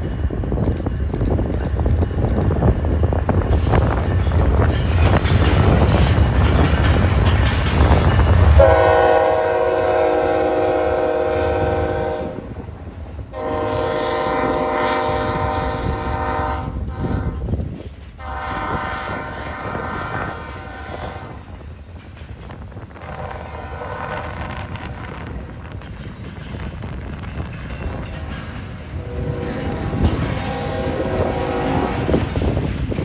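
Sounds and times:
passing train rumble: 0.0 - 33.0
locomotive air horn blasts: 8.6 - 12.4, 13.3 - 17.5, 18.2 - 21.4, 23.0 - 25.2, 29.0 - 32.2.

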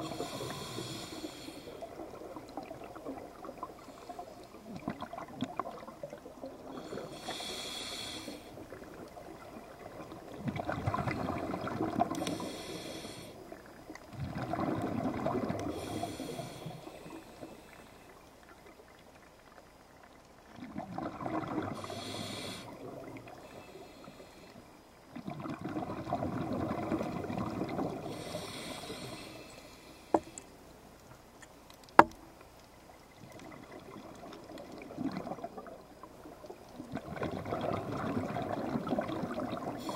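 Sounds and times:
regulator hiss on inhale: 0.0 - 1.9, 3.8 - 4.6, 6.7 - 8.7, 12.1 - 13.6, 15.6 - 18.2, 21.7 - 24.8, 28.0 - 30.6
exhaled bubbles rushing: 4.6 - 6.7, 8.8 - 12.2, 14.1 - 15.9, 20.6 - 21.9, 25.2 - 28.2, 33.2 - 39.9.

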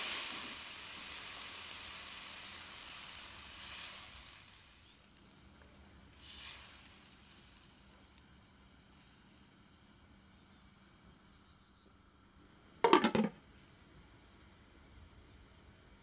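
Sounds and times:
pot lid clattering on wok: 12.8 - 13.4.

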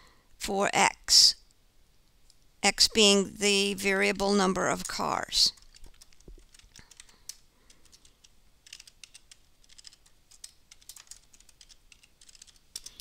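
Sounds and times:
typing on keyboard: 5.5 - 13.0.

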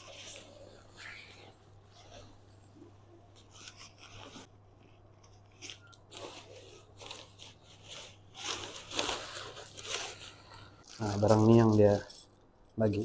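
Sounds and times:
tent fabric rustling: 5.6 - 11.7.

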